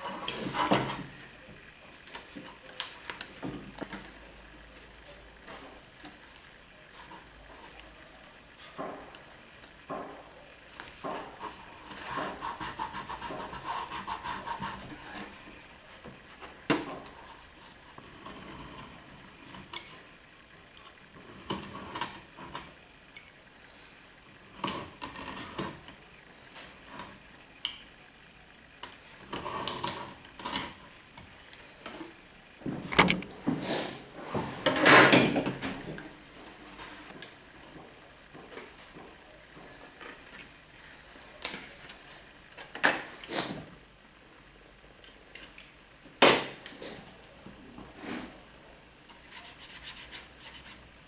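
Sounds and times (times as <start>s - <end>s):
utility knife scoring wood veneer: 10.8s - 15.6s, 49.2s - 50.9s
fingers rubbing paper tape: 11.1s - 15.4s.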